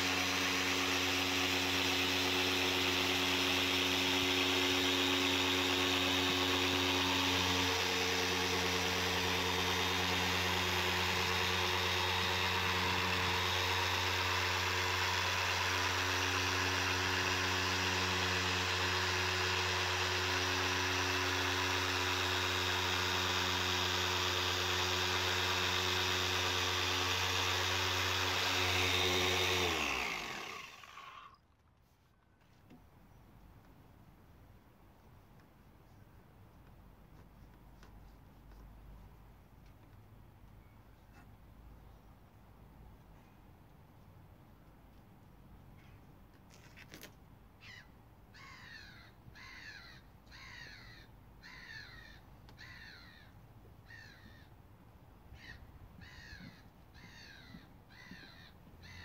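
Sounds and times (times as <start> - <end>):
polisher motor running: 0.0 - 31.6.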